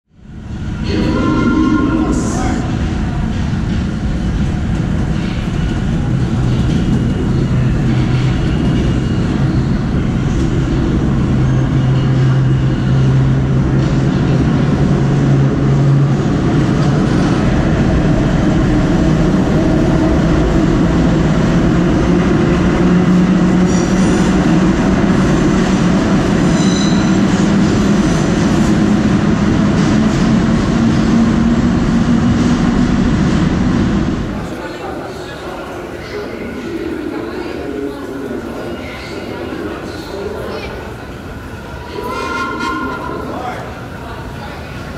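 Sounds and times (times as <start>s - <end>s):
rising whine of train: 0.1s - 44.9s
subway train wheels rumbling on rail: 0.1s - 44.9s
high wheel squeals: 26.5s - 27.2s.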